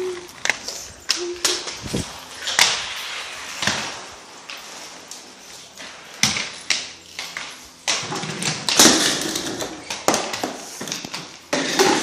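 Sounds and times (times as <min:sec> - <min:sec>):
objects knocking and clattering: 0:07.9 - 0:12.0.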